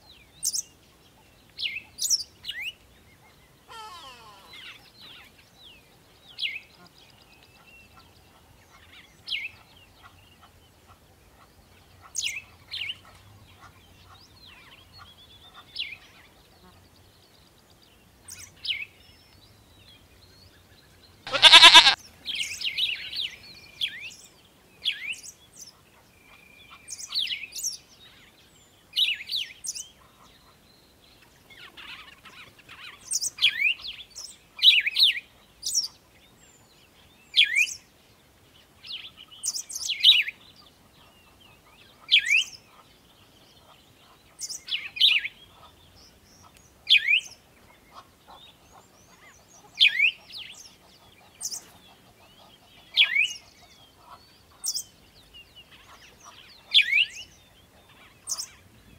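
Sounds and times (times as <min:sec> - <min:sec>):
birds chirping: 0:21.3 - 0:23.0.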